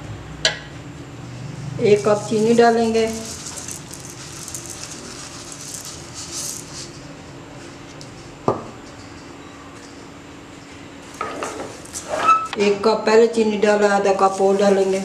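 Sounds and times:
sugar pouring hiss: 1.9s - 7.0s.

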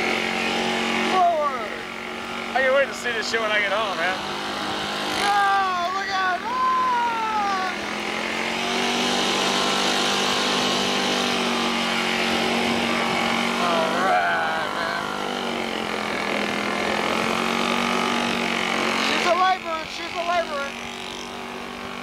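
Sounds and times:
golf cart motor droning: 0.0s - 22.0s
person speaking: 5.2s - 7.8s, 13.5s - 15.9s.

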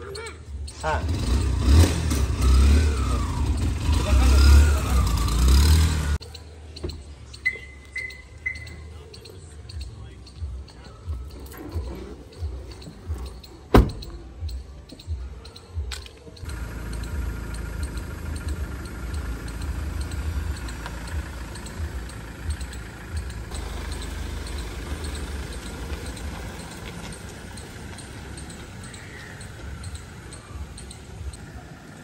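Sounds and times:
car engine starting and running: 0.5s - 7.4s, 16.4s - 32.0s
car door slamming: 13.7s - 14.2s.

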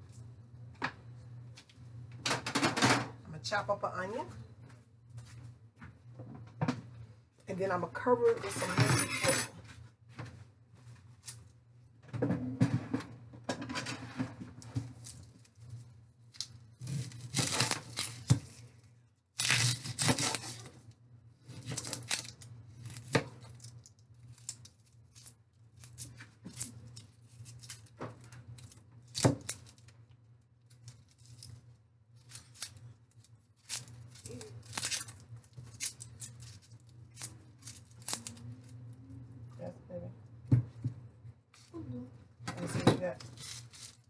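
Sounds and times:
onion skin crackling and rustling: 14.6s - 20.8s, 21.4s - 39.8s, 43.0s - 44.0s.

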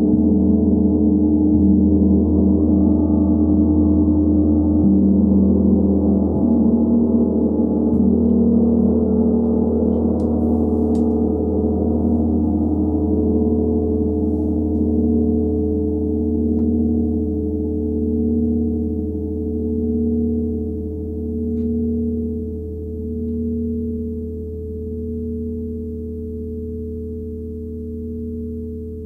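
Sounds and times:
gong ringing: 0.0s - 22.4s.

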